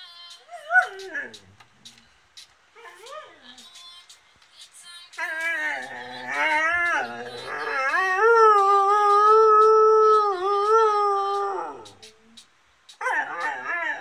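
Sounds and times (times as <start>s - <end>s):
dog howling: 5.2s - 12.0s, 13.0s - 14.0s.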